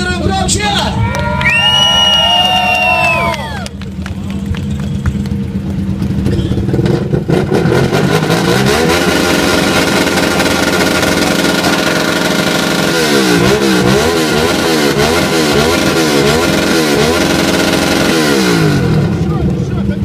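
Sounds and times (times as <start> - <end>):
motorcycle engine revving: 2.9 - 20.0.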